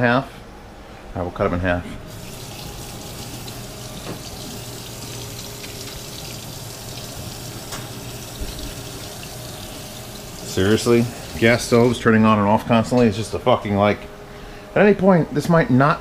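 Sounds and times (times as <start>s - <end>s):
tap running into sink: 2.2s - 11.7s.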